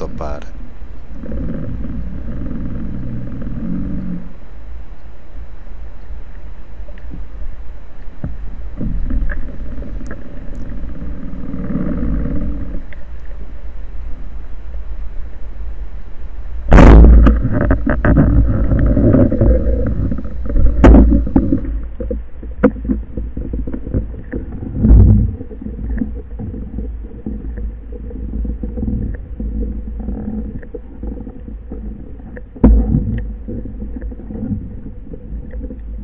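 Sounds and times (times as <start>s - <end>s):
underwater clicks: 5.9s - 13.4s.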